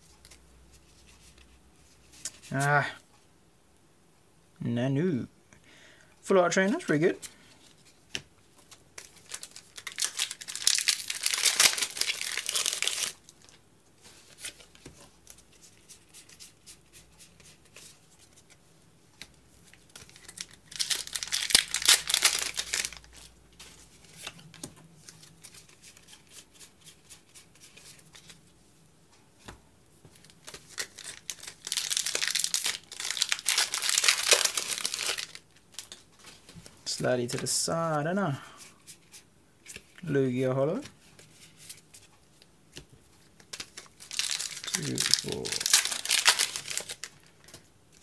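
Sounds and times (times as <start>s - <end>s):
quiet handling sounds: 0.0s - 3.3s
foil wrappers crinkling and tearing: 9.0s - 13.6s, 20.0s - 23.3s, 30.3s - 36.0s, 43.5s - 48.0s.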